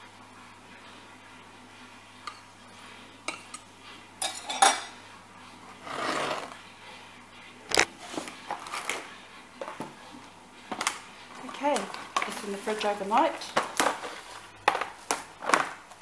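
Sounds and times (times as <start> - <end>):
metal utensil clinking on glass: 4.2 - 5.0.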